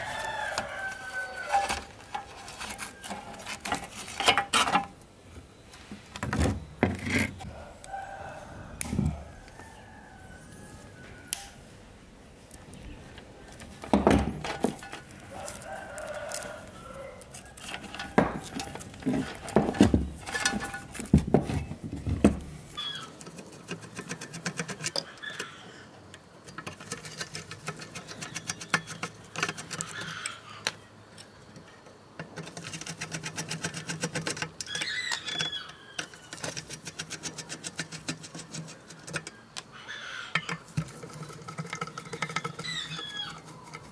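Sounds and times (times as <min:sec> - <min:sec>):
rooster crowing: 0:00.0 - 0:03.4, 0:07.4 - 0:11.7, 0:14.5 - 0:18.8, 0:25.0 - 0:25.9, 0:39.3 - 0:40.6.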